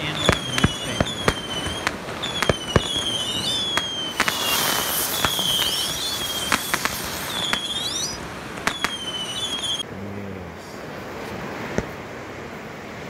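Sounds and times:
high whistle dipping and rising: 0.0 - 9.8
loud hissing of spraying sparks: 0.0 - 9.8
fire crackling with sharp pops: 0.0 - 9.9, 11.1 - 12.2.

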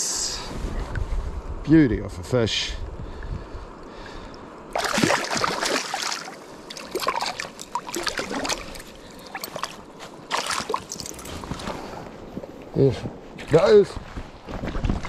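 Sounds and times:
water splashing around a fish: 4.7 - 11.0.

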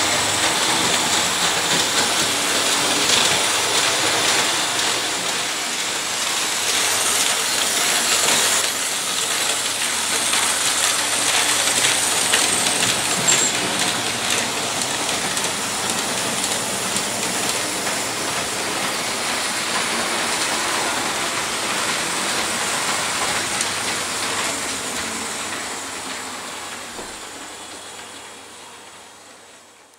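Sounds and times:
model wagons rolling on track: 6.6 - 25.2
plastic granules rattling down chute: 8.0 - 18.3.

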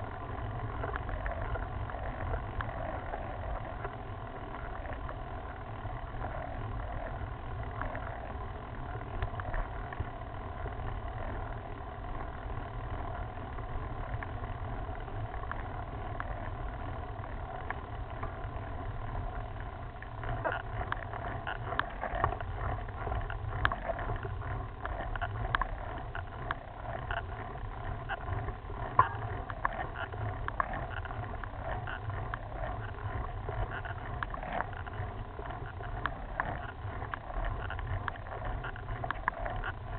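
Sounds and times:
bike tyre rumble on rough road: 0.0 - 39.9
sharp clicks and rattles: 20.3 - 39.9.

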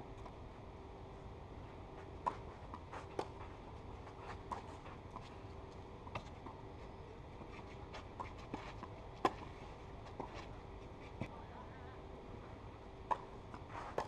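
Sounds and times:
faint steady hum: 0.0 - 14.0
tennis ball bouncing: 2.2 - 5.3, 8.2 - 10.5, 13.0 - 14.0.

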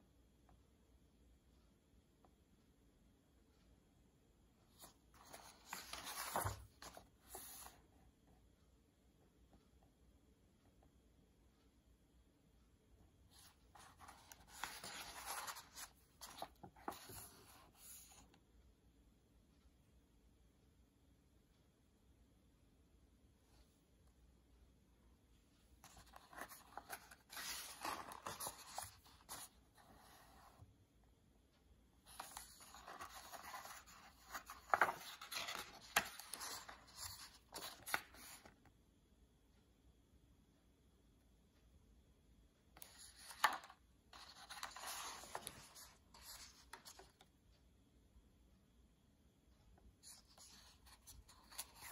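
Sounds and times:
book page turning: 4.8 - 7.8, 13.3 - 18.2, 25.8 - 30.6, 32.0 - 38.6, 42.8 - 47.2, 50.0 - 51.9
paper rustling: 4.8 - 7.8, 13.3 - 18.2, 25.8 - 30.6, 32.0 - 38.6, 42.8 - 47.2, 50.0 - 51.9.

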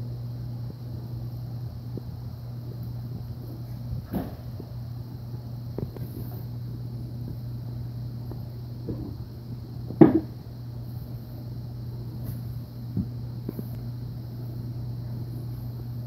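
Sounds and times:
steady low hum: 0.0 - 16.0
loud thump: 4.0 - 4.6, 10.0 - 10.4.

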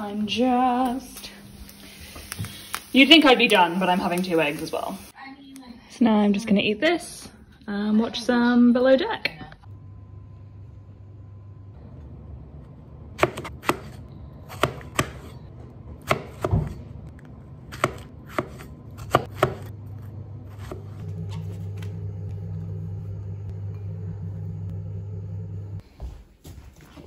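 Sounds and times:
low hum: 7.3 - 14.6, 16.9 - 26.0.

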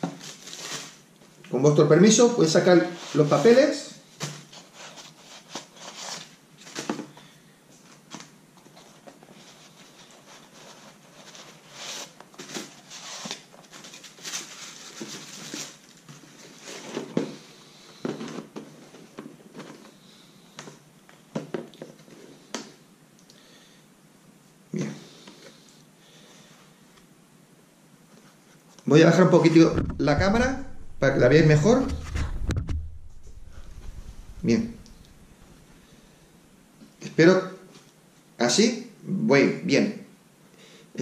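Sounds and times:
tissue paper crinkling: 0.0 - 1.0, 9.4 - 17.0.

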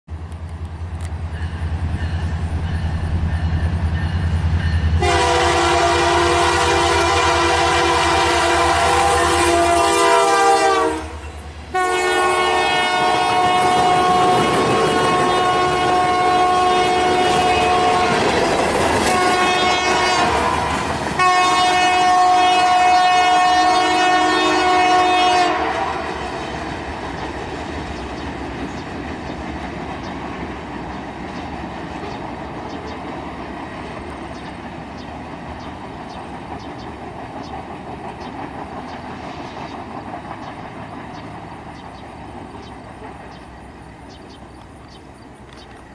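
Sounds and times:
train cars rumbling past: 0.1 - 45.9
locomotive air horn blasts: 5.0 - 26.6
wheels clicking over rail joints: 17.2 - 19.4, 26.6 - 45.9.

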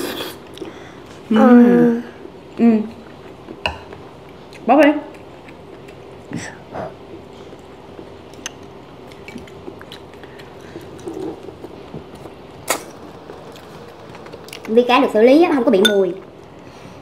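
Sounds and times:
steady low hum: 0.0 - 17.0
chewing: 3.0 - 14.8.

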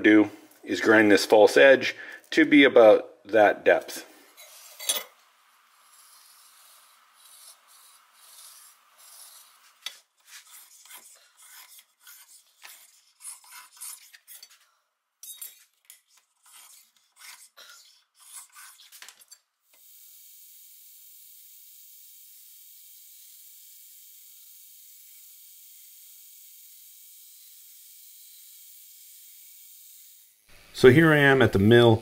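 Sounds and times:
metal clinking and scraping on stone: 4.4 - 5.2, 7.2 - 19.4.

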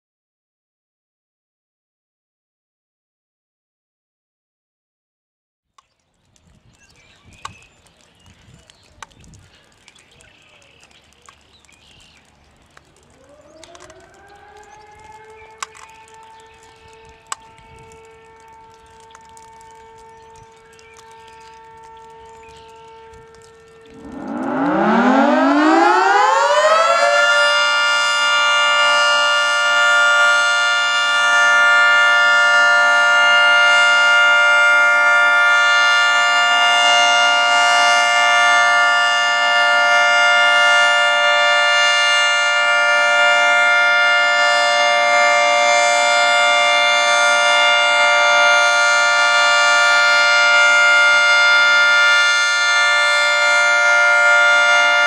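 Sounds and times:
outdoor warning siren: 6.2 - 55.0.

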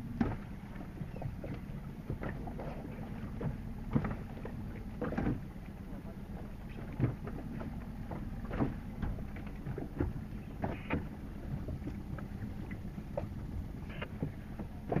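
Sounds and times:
water splashing against boat hull: 0.0 - 15.0.

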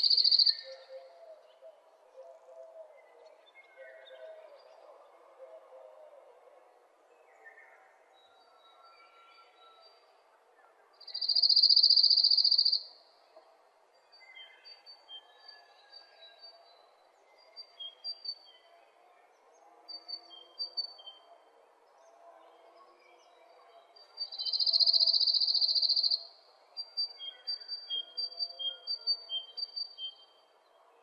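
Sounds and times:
small birds chirping: 0.0 - 0.7, 11.1 - 12.8, 24.2 - 26.2.

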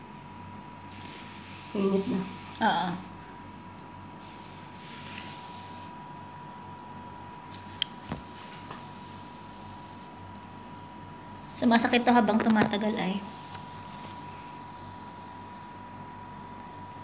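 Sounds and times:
machine steady high tone: 13.0 - 17.0.

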